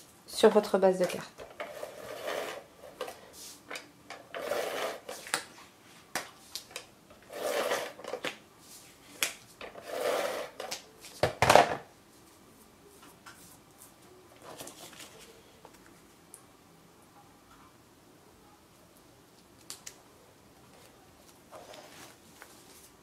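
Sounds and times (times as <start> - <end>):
tape runner rasping: 4.2 - 5.2.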